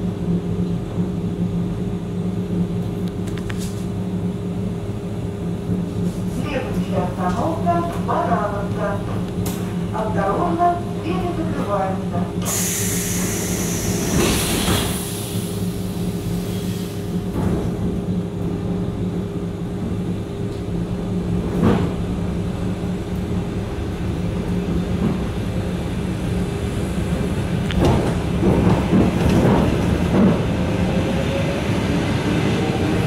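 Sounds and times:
train electrical hum: 0:00.0 - 0:33.0
air hiss: 0:12.4 - 0:15.8.

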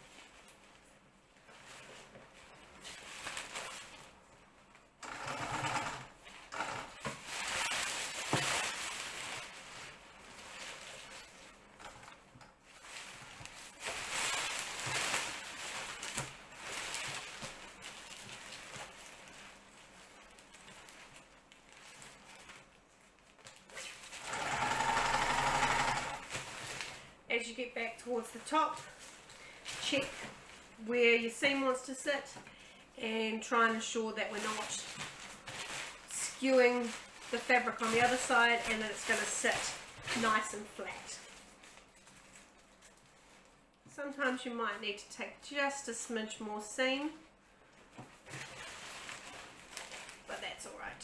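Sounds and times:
sewing machine stitching: 0:05.0 - 0:07.7, 0:24.2 - 0:26.3
nylon fabric rustling: 0:07.2 - 0:24.3, 0:27.8 - 0:32.2, 0:33.1 - 0:44.4, 0:46.8 - 0:51.0.

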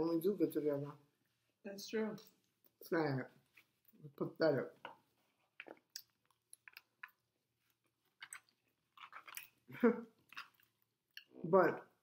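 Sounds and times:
chewing and mouth sounds: 0:05.4 - 0:11.4.

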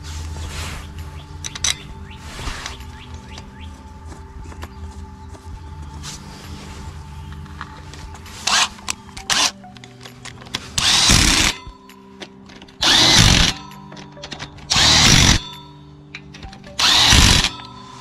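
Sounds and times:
cordless drill bursts: 0:10.8 - 0:11.6, 0:12.8 - 0:13.6, 0:14.7 - 0:15.4, 0:16.8 - 0:17.5.

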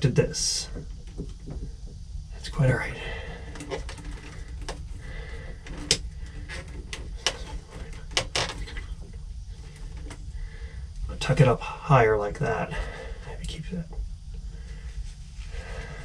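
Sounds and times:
low steady rumble: 0:00.0 - 0:16.0
light clicks and knocks: 0:00.7 - 0:02.0, 0:03.4 - 0:10.2.

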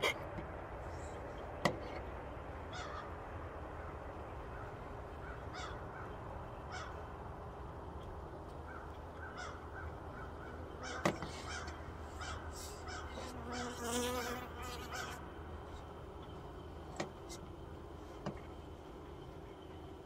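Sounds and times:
honeybees buzzing: 0:10.9 - 0:16.8.

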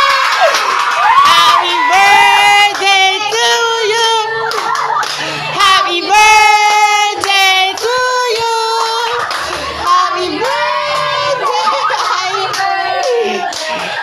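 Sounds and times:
hand-clapping: 0:00.1 - 0:01.4, 0:04.5 - 0:05.3, 0:07.2 - 0:09.7, 0:11.9 - 0:14.0
women and children singing: 0:01.1 - 0:14.0.

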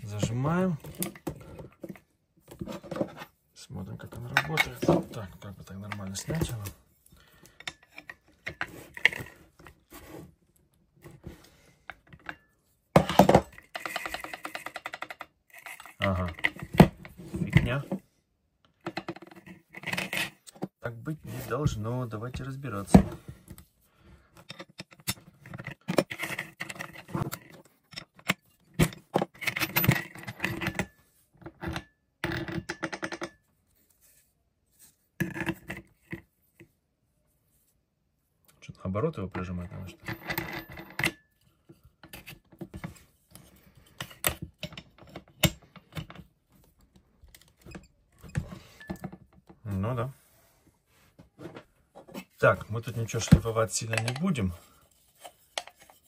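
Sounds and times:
metal parts clicking and scraping: 0:07.4 - 0:09.4, 0:11.9 - 0:17.8, 0:18.9 - 0:20.6, 0:24.4 - 0:33.4, 0:39.9 - 0:46.3.

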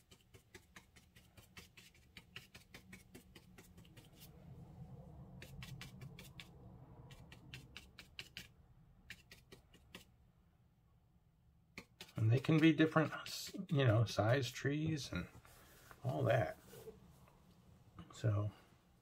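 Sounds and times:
paintbrush tapping on paper: 0:00.0 - 0:04.3.

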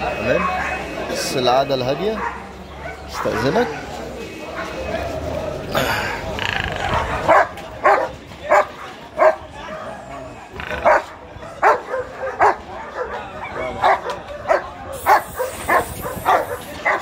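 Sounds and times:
dog barking: 0:02.1 - 0:04.0, 0:06.9 - 0:10.0, 0:10.8 - 0:17.0.

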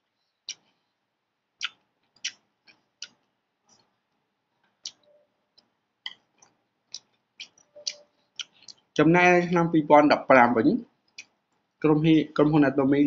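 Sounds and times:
person chewing noodles: 0:01.5 - 0:04.2, 0:04.8 - 0:09.0.

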